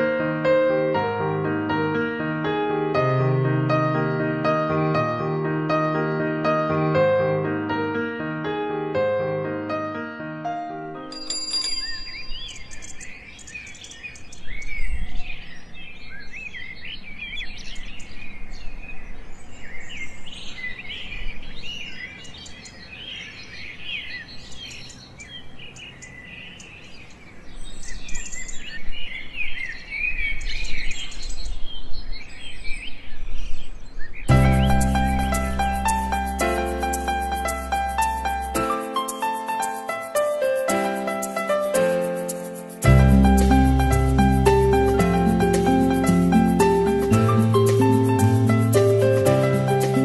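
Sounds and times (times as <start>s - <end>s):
small birds chirping: 11.0s - 50.0s.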